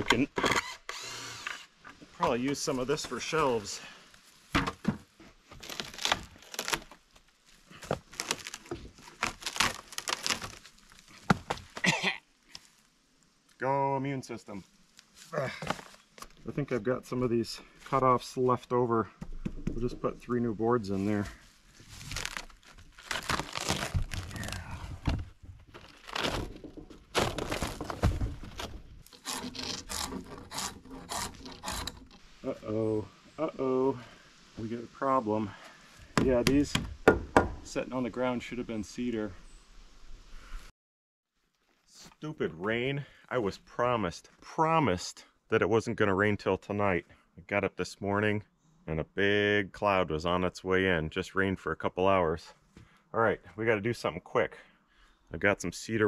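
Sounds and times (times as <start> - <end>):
wood and bark cracking: 5.5 - 13.6, 21.7 - 32.3
sharp knocks: 36.2 - 37.7.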